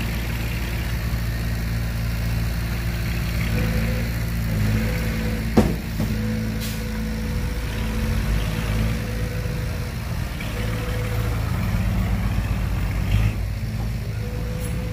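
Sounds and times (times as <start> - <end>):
heavy diesel machinery rumbling: 0.0 - 14.9
loud knock: 5.6 - 6.2.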